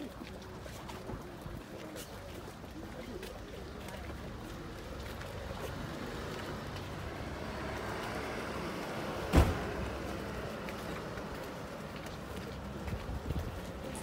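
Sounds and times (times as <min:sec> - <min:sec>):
motor vehicle running: 0:04.2 - 0:14.0
sharp thump: 0:09.3 - 0:09.8.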